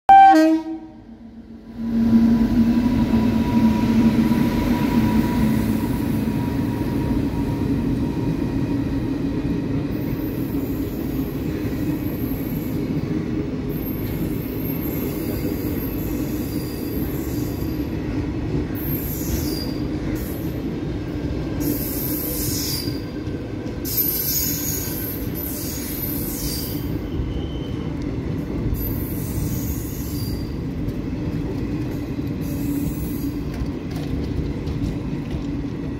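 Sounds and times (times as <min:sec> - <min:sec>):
train wheels rumbling on rail: 0:00.4 - 0:35.9
high wheel squeal: 0:13.7 - 0:17.9, 0:18.8 - 0:19.9, 0:21.6 - 0:23.1, 0:23.9 - 0:27.9, 0:28.8 - 0:30.6.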